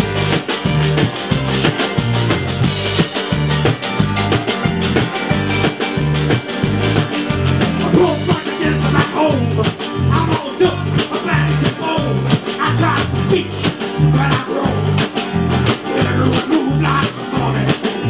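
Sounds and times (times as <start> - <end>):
sharp percussion strokes: 0.0 - 11.3
bass line: 0.0 - 18.0
electric guitar: 0.0 - 18.0.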